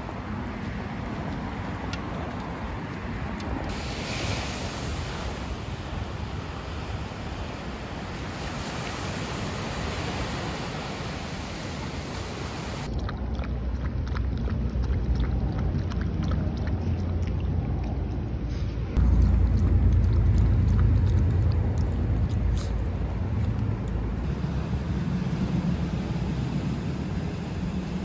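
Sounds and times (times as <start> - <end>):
waves breaking on beach: 3.7 - 12.9
dog lapping water: 12.8 - 24.3
low rumble: 12.8 - 28.0.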